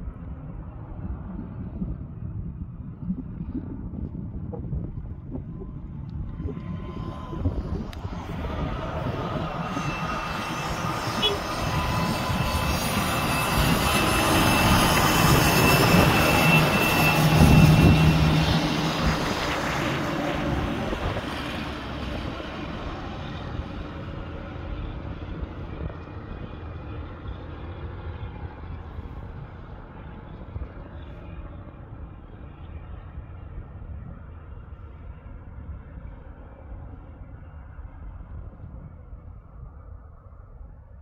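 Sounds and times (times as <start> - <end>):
diesel trucks passing: 6.4 - 30.8.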